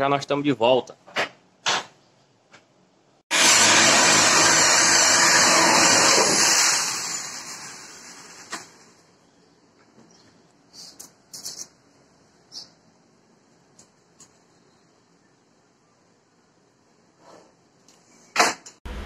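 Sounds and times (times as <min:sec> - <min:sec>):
circular saw cutting plywood: 0:03.3 - 0:08.9.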